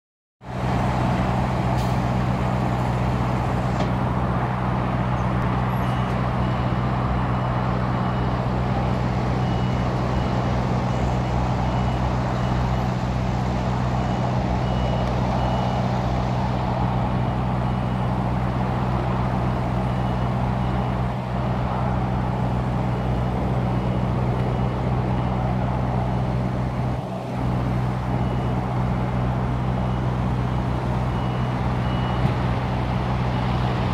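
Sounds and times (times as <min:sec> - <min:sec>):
truck engine running at low revs: 0:00.4 - 0:33.9
reversing alarm beeping: 0:05.7 - 0:13.1, 0:13.8 - 0:16.0, 0:16.9 - 0:21.2, 0:22.1 - 0:26.1, 0:27.4 - 0:33.7.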